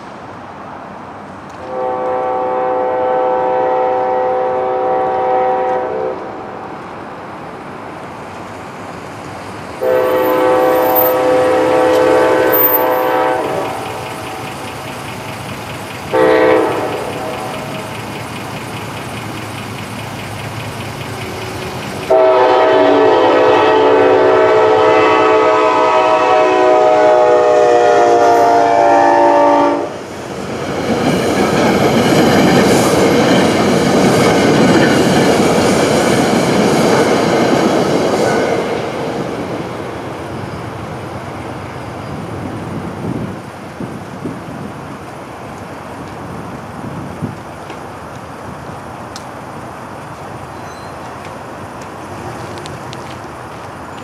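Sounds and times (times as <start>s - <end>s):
train wheels rumbling on rails: 0.0s - 54.0s
locomotive air horn blasts: 1.6s - 6.4s, 9.8s - 13.9s, 16.1s - 17.6s, 22.1s - 30.0s.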